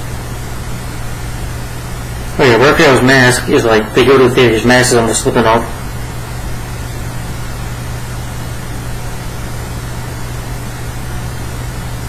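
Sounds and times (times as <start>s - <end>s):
low hum: 0.0s - 11.7s.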